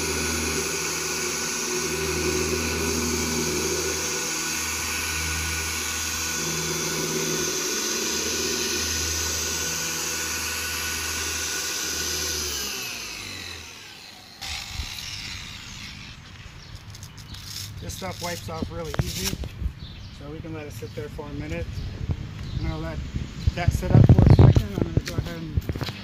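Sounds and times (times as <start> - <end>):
car polisher motor whine: 0.0 - 18.1.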